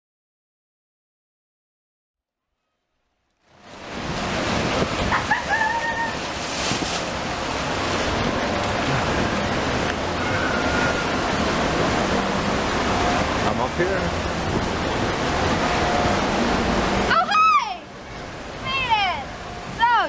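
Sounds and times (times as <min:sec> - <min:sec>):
water rushing and splashing: 0:03.4 - 0:20.0
wind on microphone: 0:03.6 - 0:13.5, 0:14.2 - 0:17.1.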